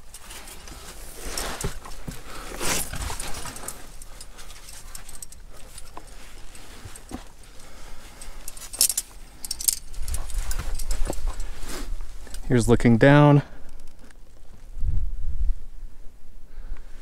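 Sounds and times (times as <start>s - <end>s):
metal carabiners jingling: 0.0s - 11.6s
rustling: 0.0s - 12.7s.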